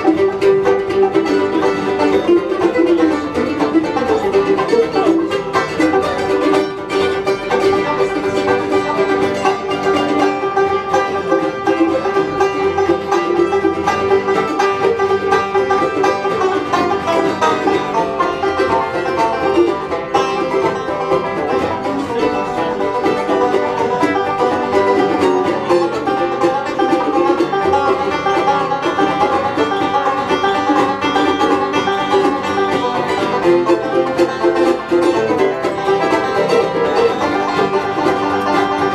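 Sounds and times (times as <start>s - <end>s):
banjo picking: 0.0s - 38.9s
strummed acoustic guitar: 0.0s - 38.9s.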